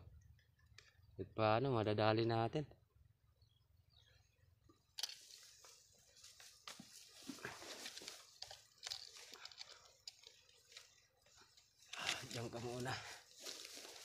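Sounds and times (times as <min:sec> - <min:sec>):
light clicks and rustles: 0:04.7 - 0:14.0
rifle handling clicks: 0:05.0 - 0:05.4.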